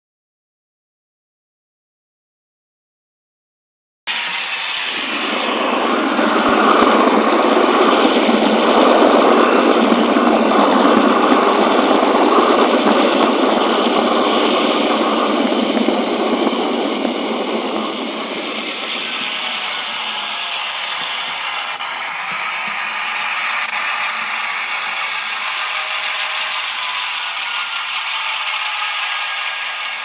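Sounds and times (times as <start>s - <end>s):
model train wheels rolling: 4.1s - 14.2s, 17.9s - 30.0s.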